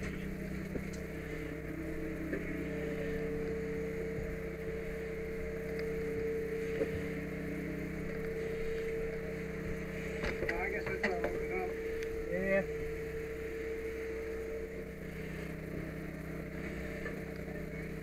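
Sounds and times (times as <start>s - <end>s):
engine droning with whine: 0.0s - 18.0s.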